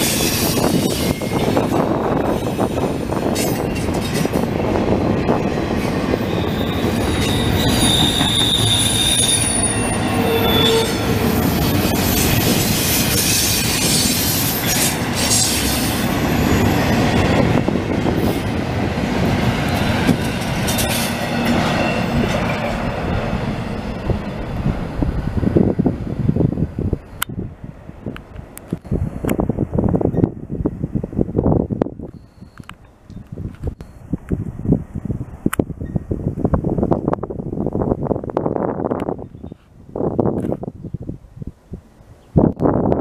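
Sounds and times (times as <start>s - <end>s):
steel wheels rumbling on rail: 0.0s - 41.1s
high wheel squeal: 6.1s - 17.1s.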